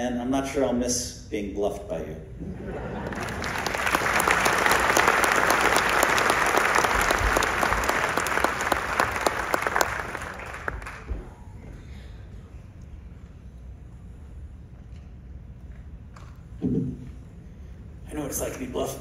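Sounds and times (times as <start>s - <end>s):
audience applauding: 3.0s - 11.2s.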